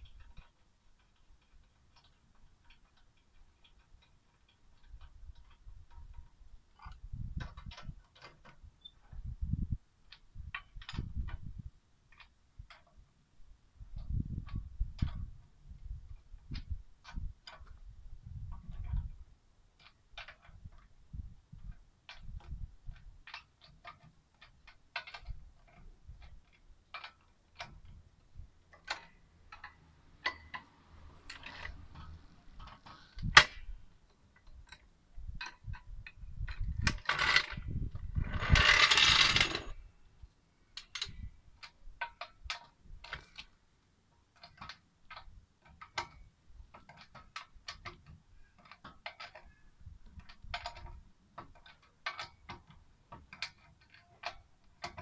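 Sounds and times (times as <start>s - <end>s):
jack scraping as rolled out: 36.8s - 39.8s.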